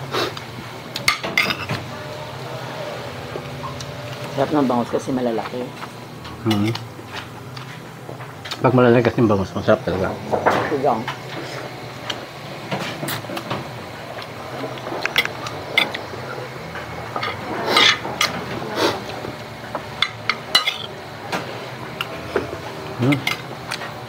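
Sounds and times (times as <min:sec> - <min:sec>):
cutlery clinking on a plate: 0:01.1 - 0:01.8, 0:20.0 - 0:20.9.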